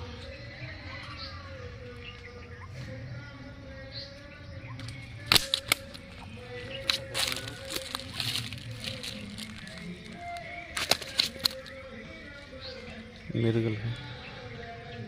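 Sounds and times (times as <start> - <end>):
rustling handling noise: 5.4 - 11.7.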